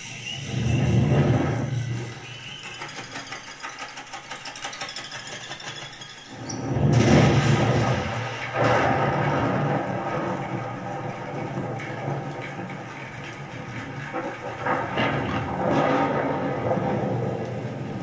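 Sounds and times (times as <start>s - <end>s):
film soundtrack through speakers: 0.0s - 4.2s, 6.3s - 18.0s
deep rumbling effects: 6.5s - 18.0s.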